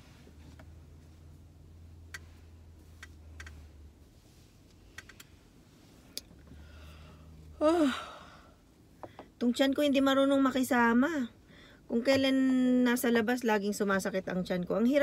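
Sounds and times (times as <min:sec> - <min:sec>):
woman yawning: 0:07.6 - 0:08.3.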